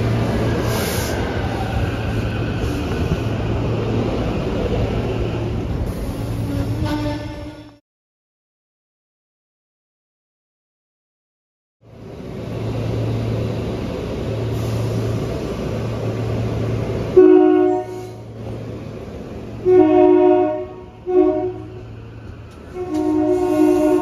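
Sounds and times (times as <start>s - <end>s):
electric train rumbling: 0.0s - 7.8s, 11.8s - 24.0s
train horn blasts: 6.4s - 7.8s, 17.1s - 18.2s, 19.6s - 21.9s, 22.7s - 24.0s.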